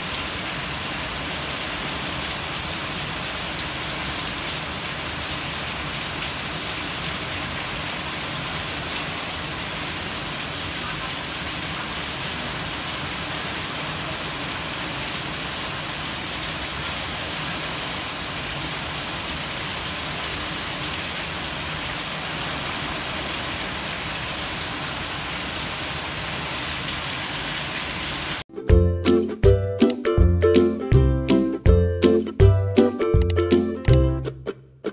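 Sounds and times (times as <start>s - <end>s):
music: 28.5s - 34.9s.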